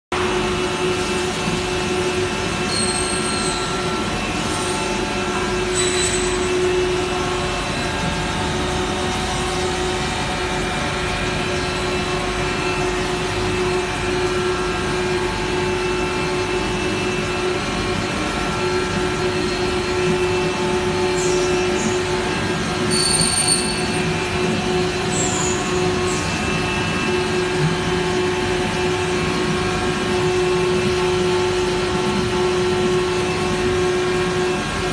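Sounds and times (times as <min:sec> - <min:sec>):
machine drone with hum: 0:00.1 - 0:34.9
brief high squeaks: 0:02.7 - 0:03.8, 0:05.7 - 0:06.5, 0:22.9 - 0:24.0.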